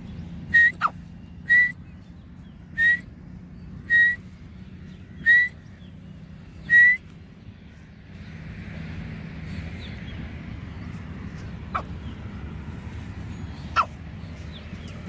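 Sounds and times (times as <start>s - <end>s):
bird whistled calls: 0.5s - 1.9s, 2.7s - 3.1s, 3.8s - 4.3s, 5.2s - 5.7s, 6.6s - 7.1s.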